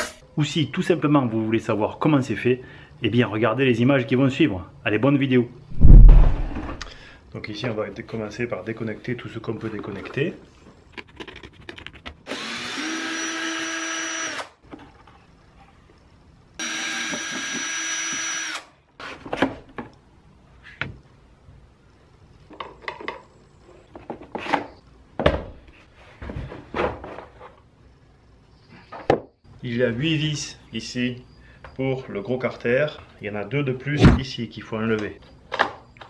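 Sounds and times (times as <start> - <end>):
electric screwdriver whining: 16.6 - 18.7.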